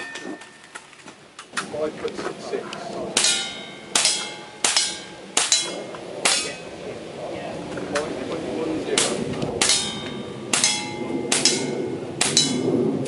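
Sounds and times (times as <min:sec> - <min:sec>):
steel plate ringing: 0:00.0 - 0:00.9, 0:03.2 - 0:06.7, 0:09.6 - 0:12.8.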